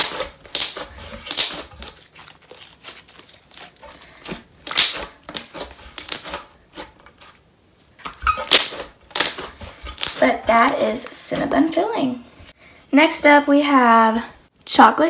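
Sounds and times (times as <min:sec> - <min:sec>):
slime crackling when squished: 0:00.0 - 0:03.8, 0:04.6 - 0:06.4, 0:08.3 - 0:10.3.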